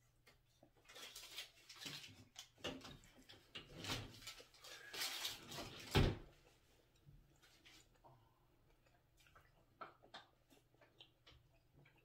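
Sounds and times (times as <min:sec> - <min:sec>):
chewing chicken wing: 0:07.8 - 0:12.0.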